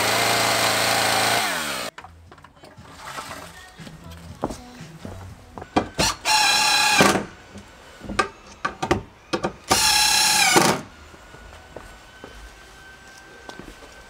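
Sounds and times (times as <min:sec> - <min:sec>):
cordless drill running: 0:00.0 - 0:01.9, 0:06.0 - 0:07.2, 0:09.7 - 0:10.9.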